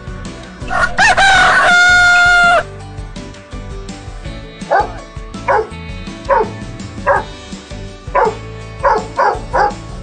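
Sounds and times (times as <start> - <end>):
background music: 0.0 - 10.0
dog barking: 4.7 - 7.3, 8.1 - 9.8.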